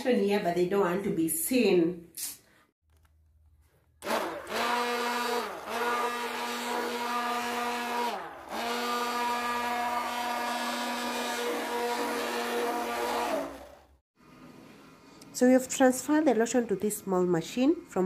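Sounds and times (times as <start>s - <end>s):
immersion blender motor whining: 4.0s - 14.0s.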